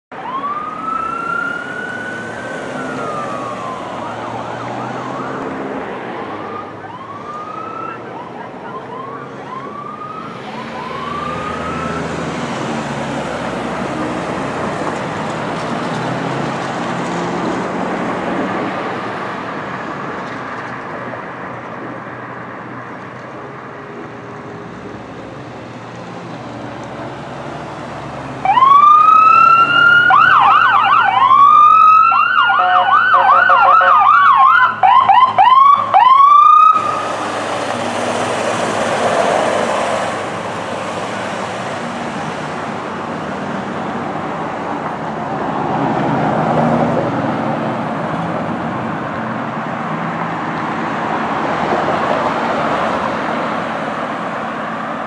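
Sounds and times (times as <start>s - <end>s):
ambulance siren wailing: 0.1s - 20.4s, 27.1s - 47.4s
traffic noise: 0.1s - 55.0s.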